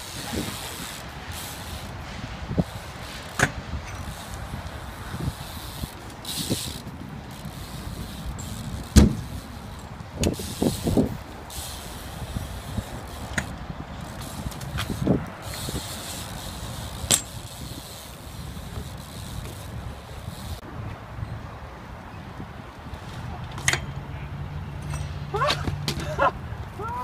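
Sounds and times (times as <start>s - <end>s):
bike tyres rumbling on concrete: 0.0s - 20.9s
bike knocks: 2.6s - 4.6s, 5.2s - 11.1s, 13.2s - 17.8s.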